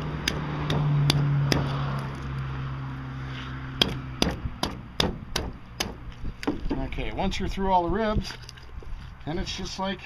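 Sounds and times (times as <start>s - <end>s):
cleaver chopping bones on wood: 0.2s - 1.8s, 3.8s - 6.8s.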